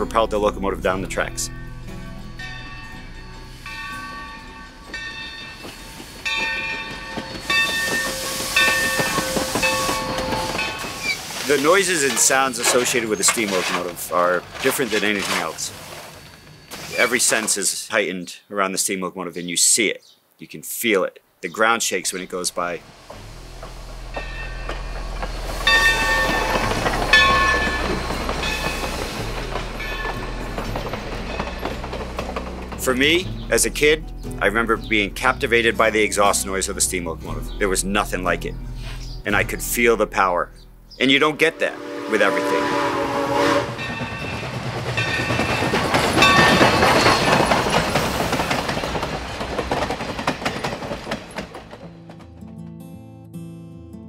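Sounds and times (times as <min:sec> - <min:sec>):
steam hissing: 0:03.4 - 0:17.6, 0:22.7 - 0:32.6
train wheels clicking over rail joints: 0:03.6 - 0:17.8, 0:22.3 - 0:36.3, 0:43.6 - 0:52.5.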